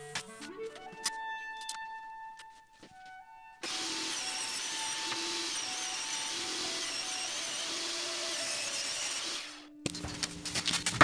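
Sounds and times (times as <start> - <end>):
table saw ripping wood: 3.6 - 11.0.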